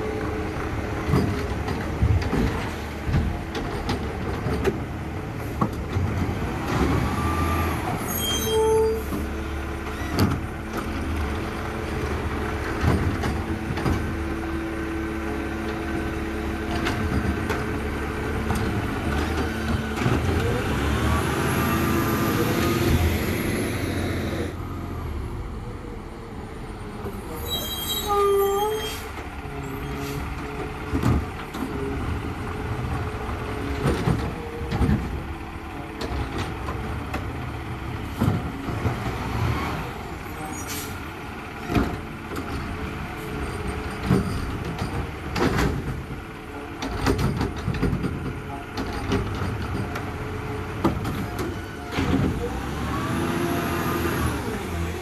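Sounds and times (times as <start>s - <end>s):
garbage truck engine: 0.0s - 55.0s
brief squeal: 8.0s - 9.1s, 27.4s - 29.1s.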